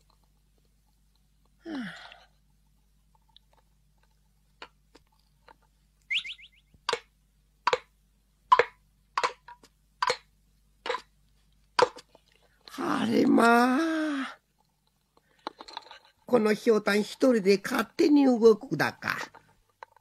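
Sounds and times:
short high rising tone: 6.1 - 6.6.

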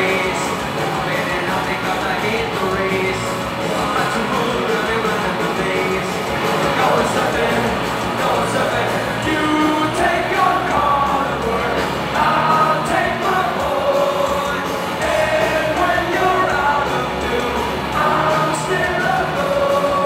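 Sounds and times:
live rock band playing: 0.0 - 20.0.

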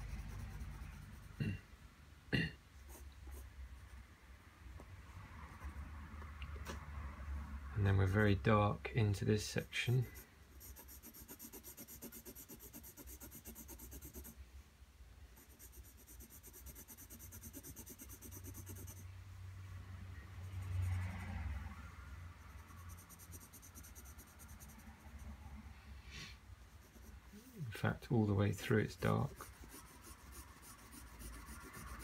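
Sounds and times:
pencil scratching on paper: 0.0 - 1.6, 2.8 - 3.5, 8.0 - 8.4, 10.0 - 14.4, 15.4 - 19.1, 22.4 - 25.4, 26.6 - 27.7, 28.6 - 32.0.

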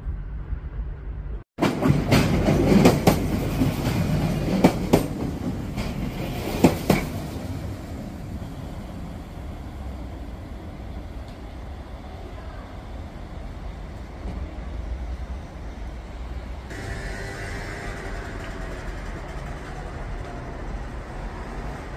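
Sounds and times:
passing train running noise: 0.0 - 21.9
train wheels clacking over rail joints: 1.6 - 7.8, 16.7 - 21.6.

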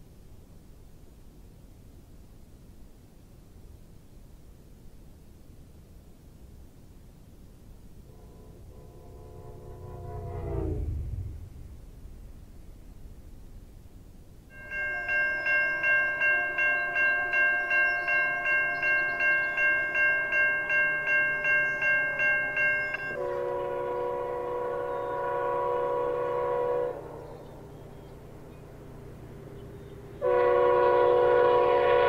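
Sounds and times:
locomotive chime air horn: 8.0 - 11.2, 14.5 - 27.3, 30.2 - 32.0
locomotive bell ringing: 14.5 - 25.2.

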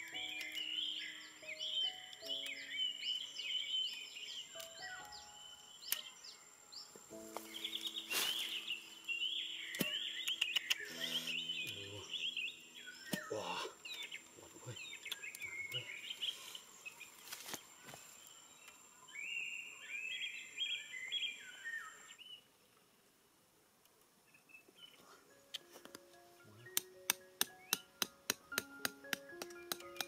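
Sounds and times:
birds chirping and singing: 0.0 - 22.5, 24.3 - 30.0
sharp clicks: 9.7 - 11.0, 26.7 - 30.0.

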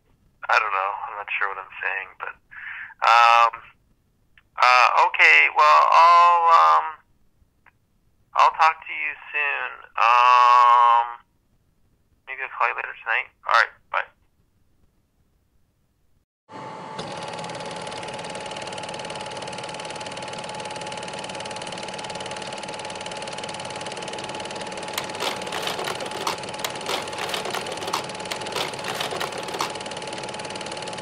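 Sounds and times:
small machine whirring: 17.1 - 31.0
irregular sharp clicks: 25.0 - 29.8.

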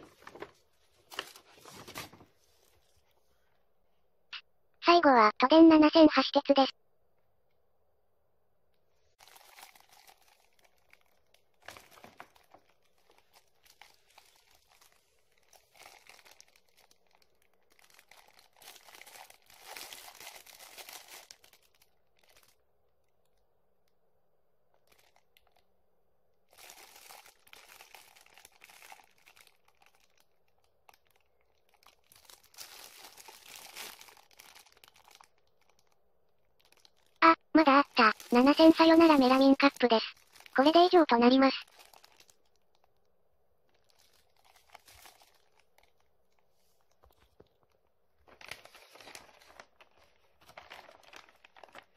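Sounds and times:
plastic wrapping crinkling: 0.0 - 3.1, 9.2 - 22.6, 24.7 - 25.6, 26.5 - 37.2, 37.9 - 40.7, 41.6 - 51.9.

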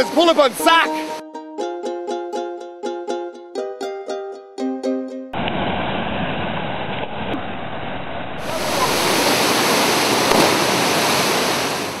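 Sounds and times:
waterfall rushing: 8.4 - 12.0.

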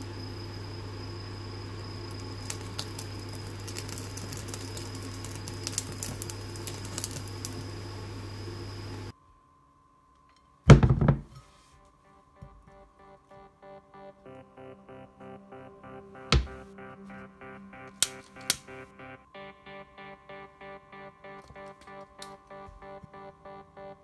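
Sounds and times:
steady low hum: 0.0 - 10.5, 11.3 - 24.0
flames crackling and popping: 1.6 - 9.1, 17.9 - 18.8.

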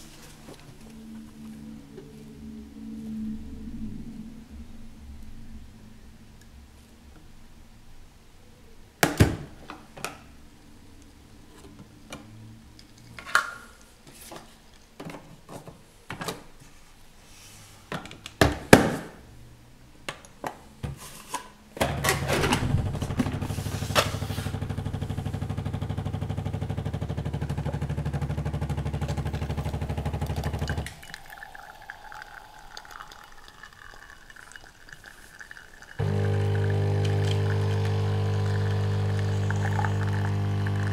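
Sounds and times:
music: 0.1 - 5.8
machine pump humming: 21.9 - 31.4, 36.0 - 40.9.

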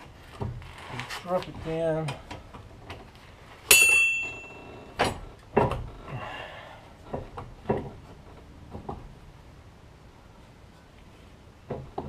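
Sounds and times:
metal tools clanking: 3.7 - 5.3.

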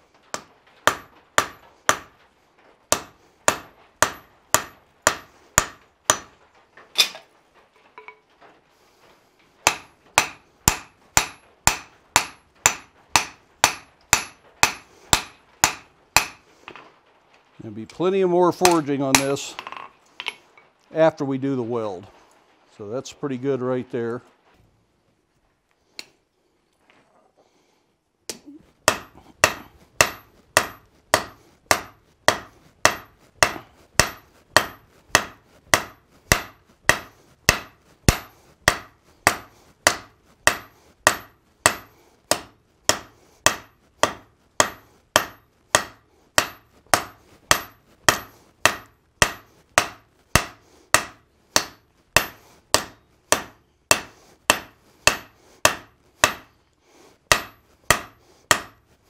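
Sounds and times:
hammer striking steel on anvil: 0.3 - 2.2, 2.9 - 6.4, 7.0 - 7.3, 9.6 - 16.8, 18.6 - 20.4, 28.8 - 56.6, 57.3 - 58.8.

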